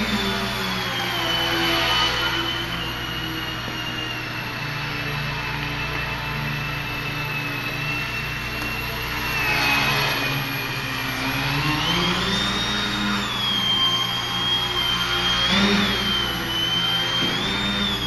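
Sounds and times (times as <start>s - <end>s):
electric motor and propeller whining: 0.0s - 18.0s.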